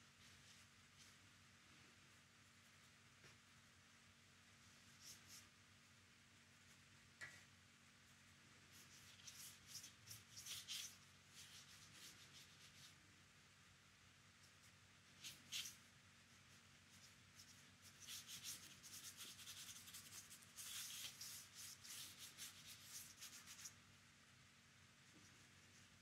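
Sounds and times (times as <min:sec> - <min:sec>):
paintbrush scratching on paper: 0:04.6 - 0:05.6, 0:08.6 - 0:13.0, 0:14.4 - 0:23.8.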